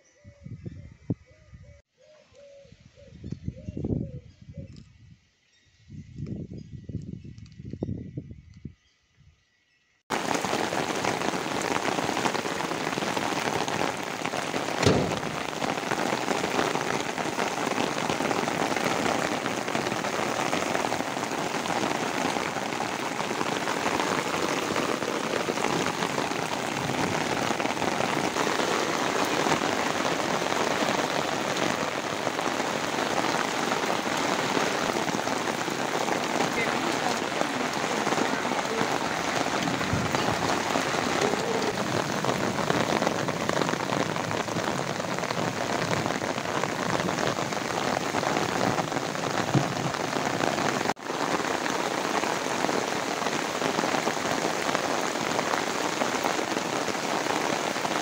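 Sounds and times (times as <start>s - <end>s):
heavy rain on paving: 10.1s - 58.0s
brief thump: 14.8s - 15.3s.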